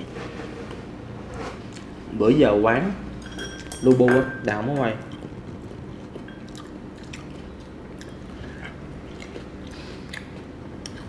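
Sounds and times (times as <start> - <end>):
low room hum: 0.0 - 11.0
person biting and chewing: 5.1 - 11.0.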